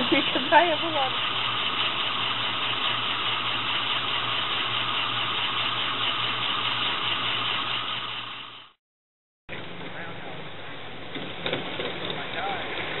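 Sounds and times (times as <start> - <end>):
steam hissing: 0.0 - 8.7.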